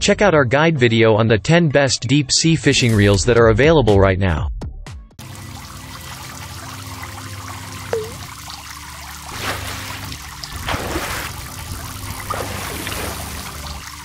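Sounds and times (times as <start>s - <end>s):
running water: 5.2s - 14.0s
water drop plop: 7.9s - 8.3s
water swishes: 7.9s - 14.0s.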